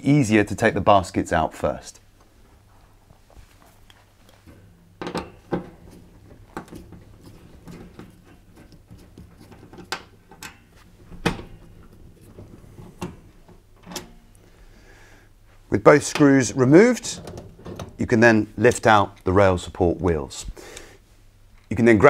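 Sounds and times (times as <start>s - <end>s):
metal clicks and scrapes: 4.3s - 14.2s.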